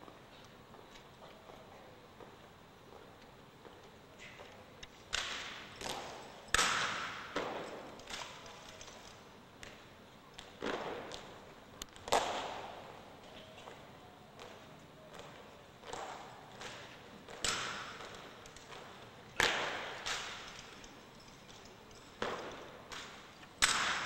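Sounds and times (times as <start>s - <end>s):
rifles slapped and knocked: 5.1s - 9.8s, 15.8s - 24.0s.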